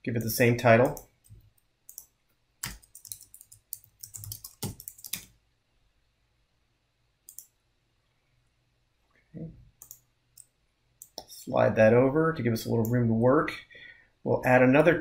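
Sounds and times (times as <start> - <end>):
keyboard typing: 0.2 - 5.3, 7.3 - 7.5, 9.8 - 11.3.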